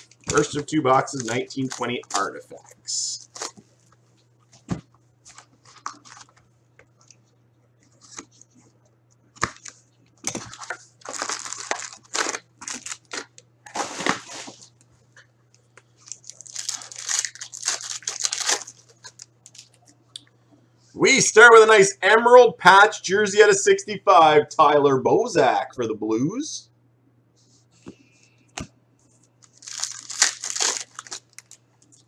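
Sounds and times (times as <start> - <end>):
cardboard and foil tearing: 0.0 - 3.6, 10.3 - 14.7, 16.0 - 19.7, 29.5 - 31.6.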